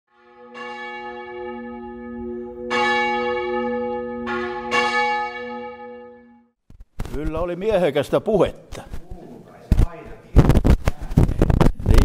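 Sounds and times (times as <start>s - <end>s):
church bells ringing: 0.1s - 6.6s.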